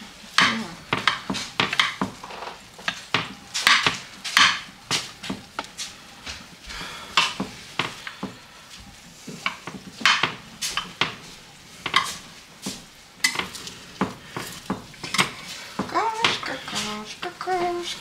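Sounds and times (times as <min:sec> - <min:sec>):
cutlery scraping against a dish: 0:14.4 - 0:15.6.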